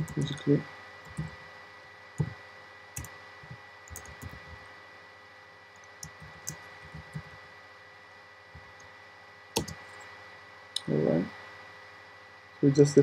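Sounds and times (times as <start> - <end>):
typing on computer keyboard: 1.1 - 1.4, 3.9 - 4.6, 6.0 - 7.4, 9.6 - 9.8.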